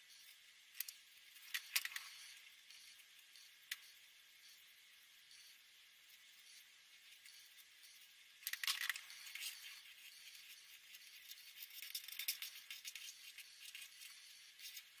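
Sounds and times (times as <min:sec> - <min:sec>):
marker scratching on paper: 0:09.0 - 0:15.0.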